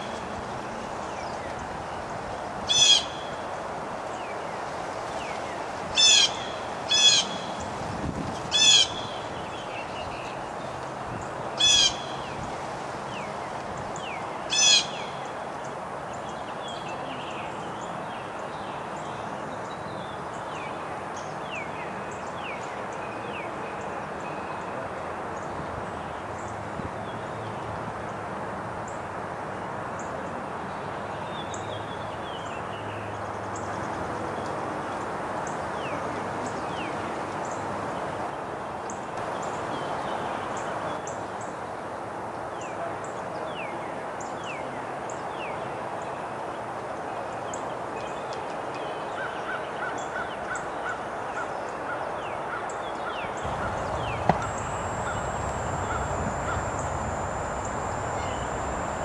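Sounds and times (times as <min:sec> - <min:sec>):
birds chirping: 0:53.3 - 0:59.0
steady rushing background: 0:53.4 - 0:59.0
thin high whine: 0:53.4 - 0:59.0
sharp click: 0:53.5 - 0:59.0.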